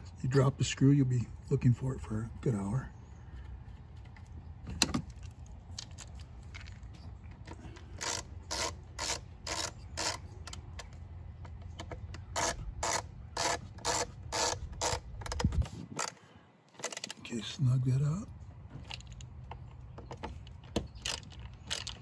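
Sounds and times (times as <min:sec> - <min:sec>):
screwdriver turning screw: 0:08.0 - 0:10.7, 0:12.3 - 0:16.2, 0:20.7 - 0:22.0.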